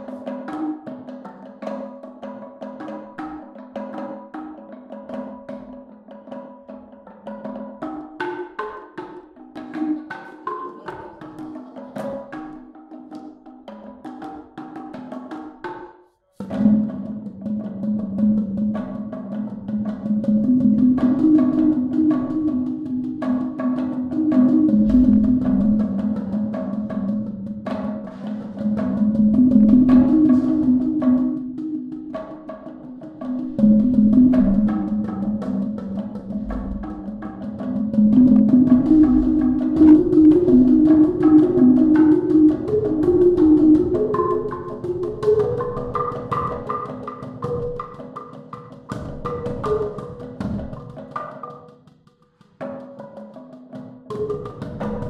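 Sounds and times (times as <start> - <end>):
wooden xylophone played with mallets: 9.6 - 13.4, 16.4 - 51.7, 54.1 - 55.0.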